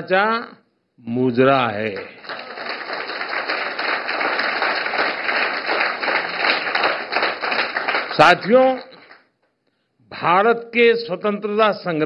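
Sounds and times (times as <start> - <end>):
audience applauding: 2.0 - 9.3.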